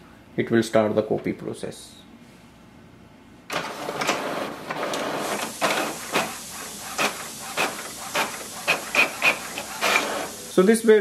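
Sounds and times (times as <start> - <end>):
printer paper feed clicks: 3.5 - 10.4
printer mechanism whirring: 3.5 - 10.6.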